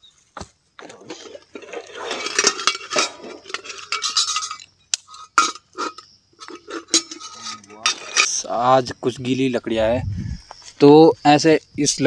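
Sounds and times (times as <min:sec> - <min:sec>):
metal cookware clinking: 0:01.1 - 0:08.4.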